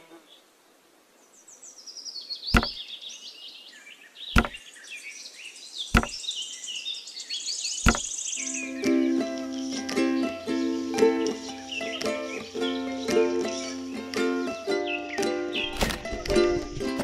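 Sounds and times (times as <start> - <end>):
birds chirping: 1.3 - 15.8
model panels knocking on base: 2.6 - 2.8, 4.4 - 4.6, 6.0 - 6.2, 7.9 - 8.1.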